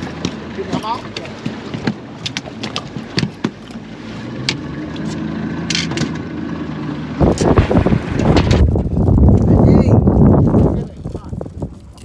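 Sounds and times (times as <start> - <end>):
boat motor humming: 0.0 - 12.0
sharp knocks and taps: 0.1 - 3.8.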